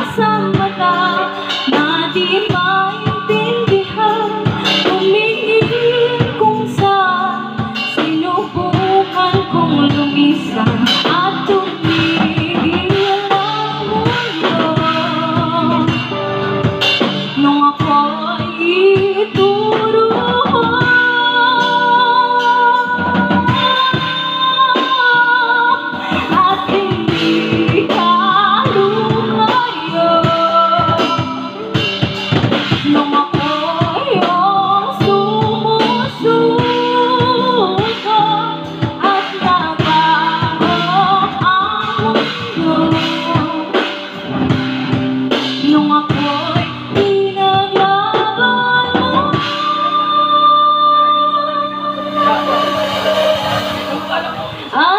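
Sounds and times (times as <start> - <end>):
drum kit: 0.0 - 54.9
guitar: 0.0 - 54.9
woman singing into microphone: 0.0 - 54.9.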